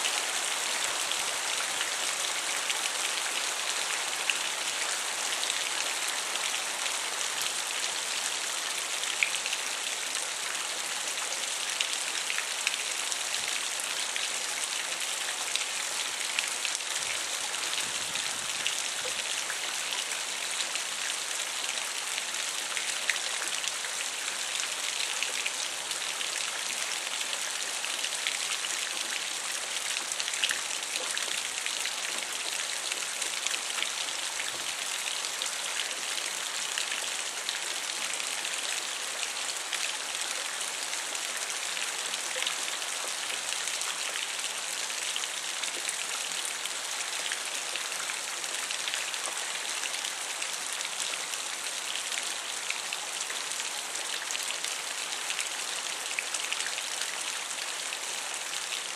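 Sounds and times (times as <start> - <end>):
rain pouring: 16.1 - 23.2.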